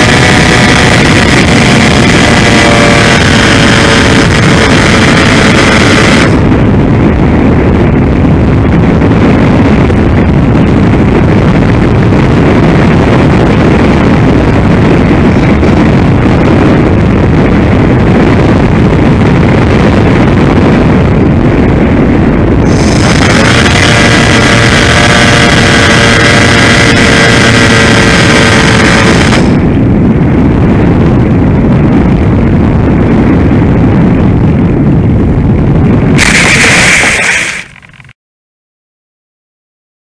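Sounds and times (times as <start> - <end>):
electric motor whining: 0.0 - 6.4
wind rush and buffeting: 0.0 - 38.2.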